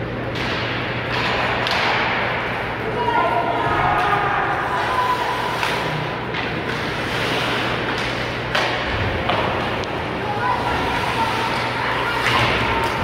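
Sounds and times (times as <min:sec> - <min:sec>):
crowd and rink din: 0:00.0 - 0:13.0
sticks and puck knocking boards: 0:00.3 - 0:02.4, 0:07.7 - 0:10.0.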